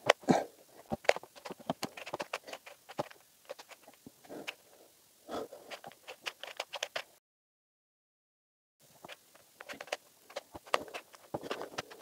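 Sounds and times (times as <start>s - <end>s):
puzzle cube clicking: 0.9s - 4.6s, 5.7s - 7.1s, 9.1s - 12.0s.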